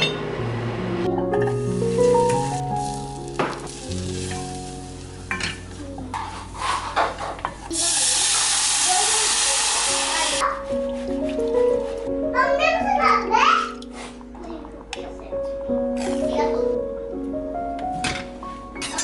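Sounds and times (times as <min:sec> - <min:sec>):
roux sizzling in saucepan: 0:01.7 - 0:05.3, 0:07.6 - 0:10.4
water hissing in hot pan: 0:01.8 - 0:05.2, 0:07.7 - 0:10.4
wooden spoon scraping pan: 0:06.1 - 0:07.5.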